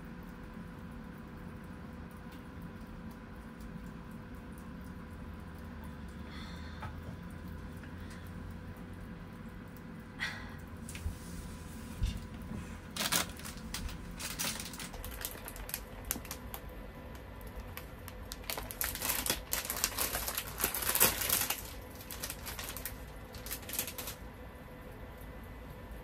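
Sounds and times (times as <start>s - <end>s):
plastic wrapper crinkling and tearing: 12.9s - 24.2s.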